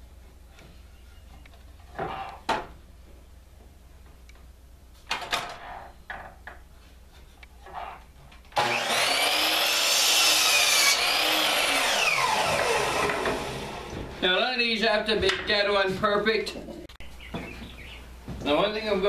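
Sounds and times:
miter saw motor whine: 8.6s - 13.9s
saw blade cutting wood: 8.6s - 14.0s.

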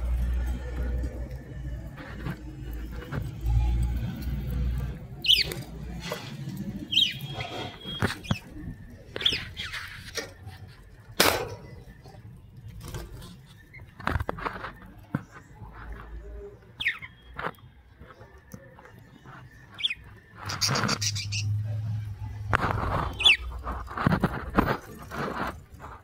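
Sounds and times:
budgerigars chirping: 5.2s - 5.5s, 6.9s - 8.4s, 19.8s - 21.6s, 23.2s - 23.5s
wings fluttering: 18.8s - 26.0s.

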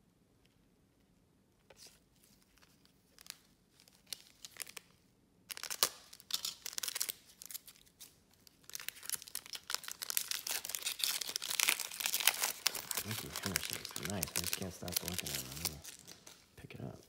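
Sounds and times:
foil pack tearing and crinkling: 5.5s - 16.4s.

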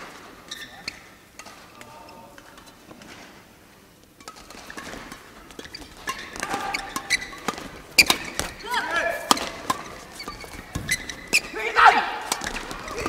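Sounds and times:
rackets hitting shuttlecock: 4.2s - 13.0s.

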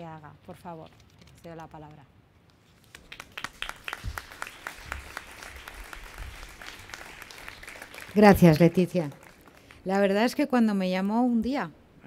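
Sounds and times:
audience applauding: 2.9s - 10.0s.

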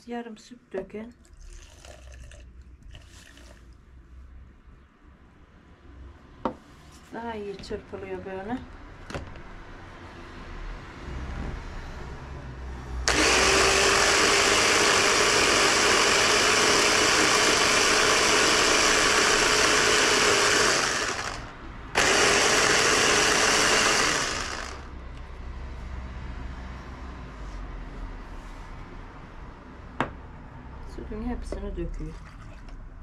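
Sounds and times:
blender motor whirring: 13.1s - 24.9s.

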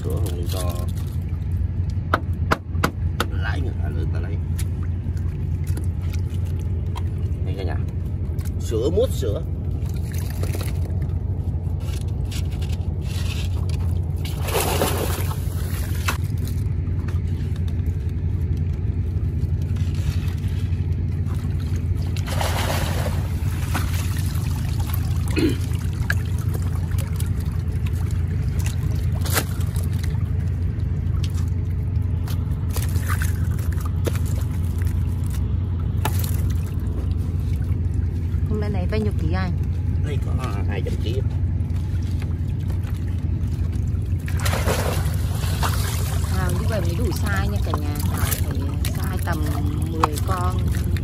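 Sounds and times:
steady low hum: 0.0s - 51.0s
water splashing: 0.0s - 51.0s
water trickling: 17.6s - 51.0s.

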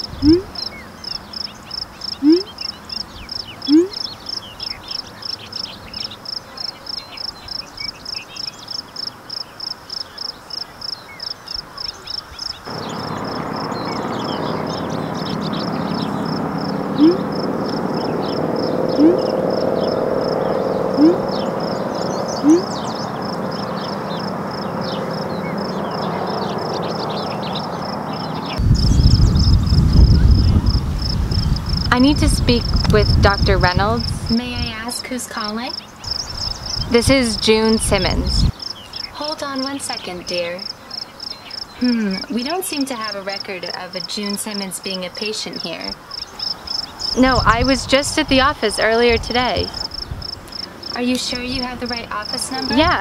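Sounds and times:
insects chirping: 0.0s - 53.0s
steady rush: 12.7s - 35.0s.

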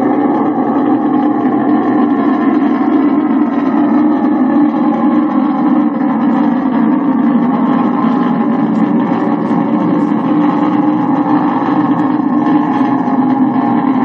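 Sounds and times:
rocket engines roaring: 0.0s - 14.0s.

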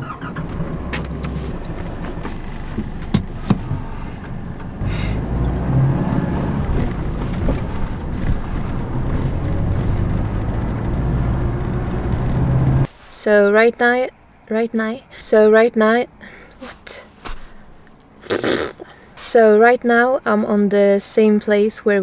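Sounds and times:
truck engine running: 0.0s - 12.9s
road noise: 0.0s - 20.9s.

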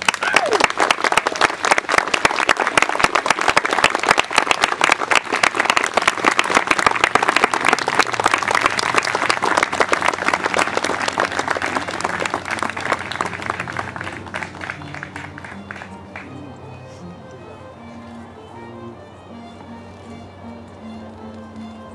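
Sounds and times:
crowd applauding: 0.0s - 16.6s.

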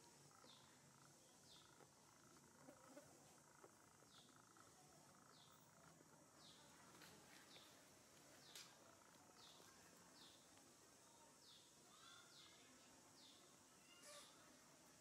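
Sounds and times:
faint insect hum: 0.0s - 15.0s.

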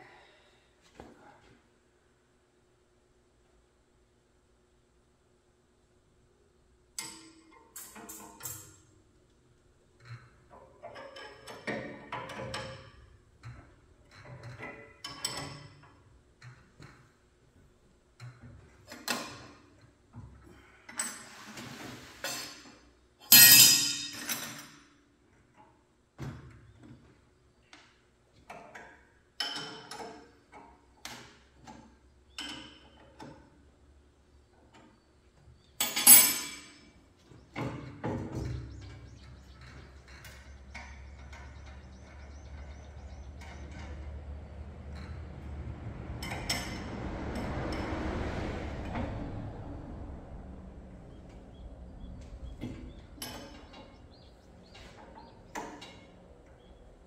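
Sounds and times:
tools and parts clanking: 10.0s - 17.2s, 18.2s - 27.0s, 28.4s - 33.6s, 34.6s - 49.4s, 51.2s - 57.0s.

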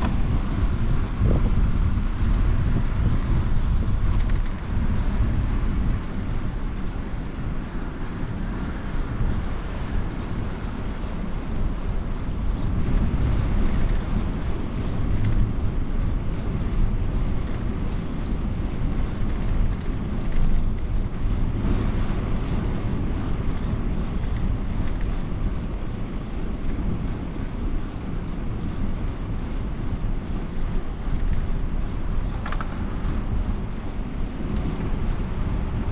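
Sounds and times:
wind buffeting microphone: 0.0s - 35.9s.

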